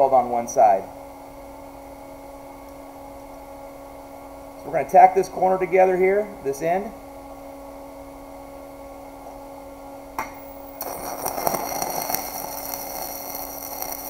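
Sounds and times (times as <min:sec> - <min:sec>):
steady hum: 0:00.0 - 0:14.0
welding arc crackling: 0:10.2 - 0:14.0.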